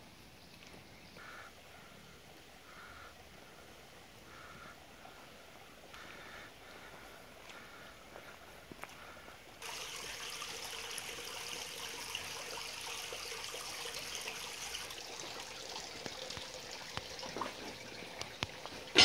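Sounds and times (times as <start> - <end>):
water trickling into stone basin: 9.0 - 19.0.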